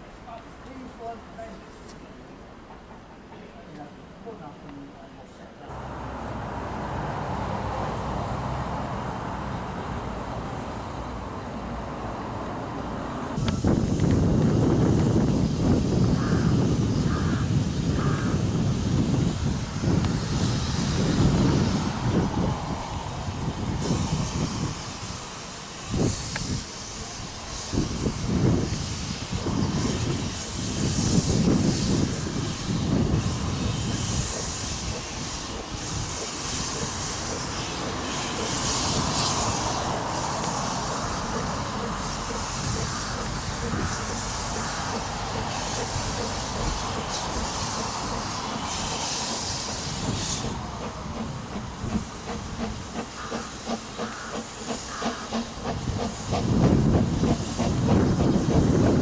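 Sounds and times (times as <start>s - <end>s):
steam locomotive hissing steam: 13.2s - 59.0s
locomotive steam puffs: 13.4s - 59.0s.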